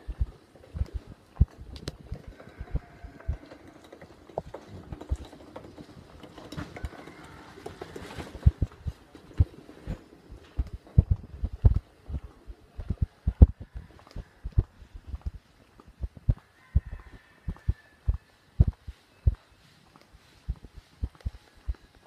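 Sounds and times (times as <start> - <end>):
footsteps on paved path: 6.7 - 22.0.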